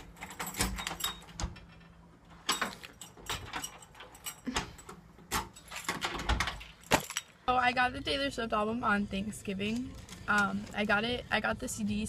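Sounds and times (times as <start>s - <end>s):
handling knocks and clicks: 0.0s - 7.4s.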